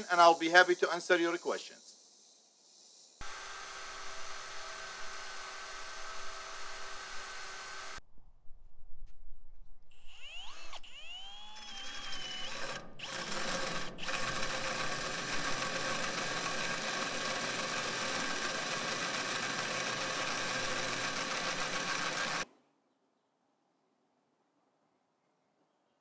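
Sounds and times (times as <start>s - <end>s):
cordless drill motor whine: 3.2s - 8.0s, 9.9s - 22.4s
hole saw grinding through steel: 3.2s - 8.0s, 10.0s - 22.4s.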